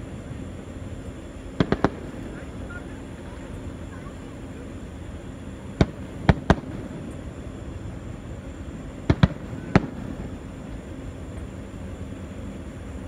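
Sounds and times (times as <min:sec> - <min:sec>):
low background rumble: 0:00.0 - 0:13.0
fireworks bangs: 0:01.6 - 0:04.2, 0:05.7 - 0:07.3, 0:09.0 - 0:11.4.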